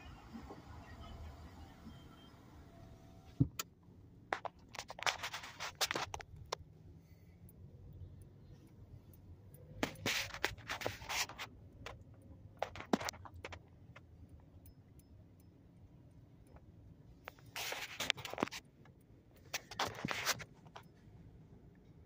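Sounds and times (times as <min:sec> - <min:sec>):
car rumble: 0:00.0 - 0:22.0
scratching and rubbing: 0:04.4 - 0:06.4, 0:09.8 - 0:12.0, 0:17.3 - 0:18.6, 0:19.5 - 0:20.8.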